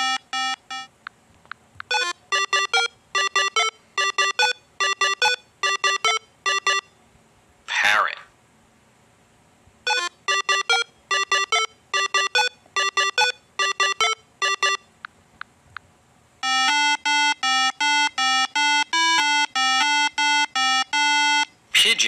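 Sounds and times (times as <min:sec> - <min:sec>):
electronic beeping tones: 0:01.9 - 0:06.9, 0:09.9 - 0:14.9, 0:16.4 - 0:21.5.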